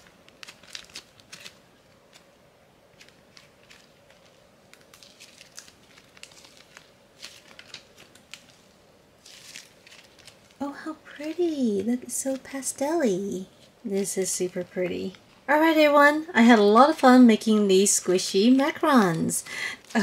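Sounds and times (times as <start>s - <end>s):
slime squishing: 0.0s - 12.6s.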